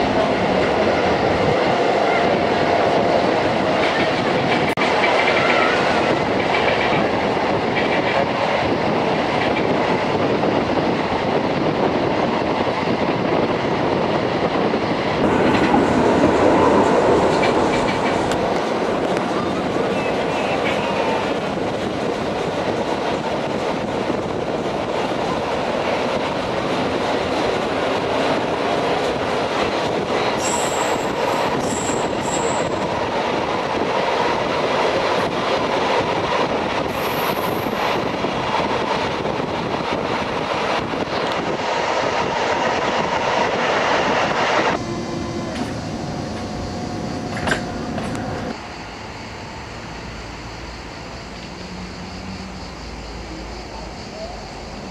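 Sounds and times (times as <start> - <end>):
quiet train hum: 0.0 - 54.9
train wheels rumbling on rails: 0.0 - 54.9
high-pitched wheel squeals: 30.4 - 32.8.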